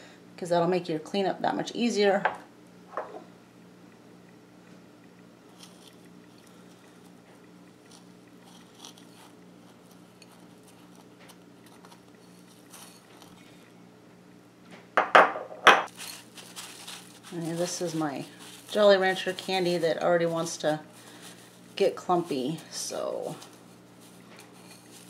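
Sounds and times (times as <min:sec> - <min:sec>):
steady low hum: 0:00.0 - 0:25.0
crackling rustle of crushed candy: 0:05.5 - 0:13.6, 0:15.9 - 0:25.0.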